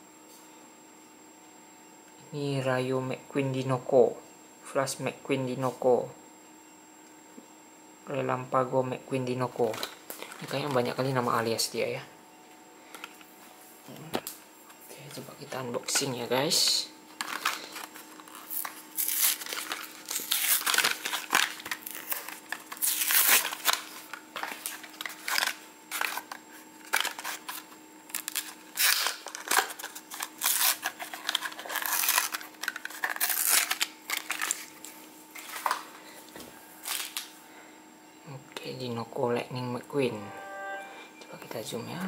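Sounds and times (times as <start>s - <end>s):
faint steady hum: 0.0s - 42.0s
plastic blister pack crinkling: 9.6s - 11.2s, 17.1s - 36.0s, 36.8s - 37.3s
cardboard tearing: 17.2s - 34.7s.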